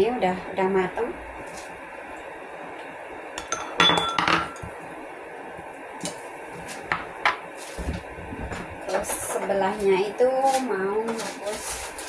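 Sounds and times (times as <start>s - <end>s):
metal clanking on pot: 3.4s - 4.7s.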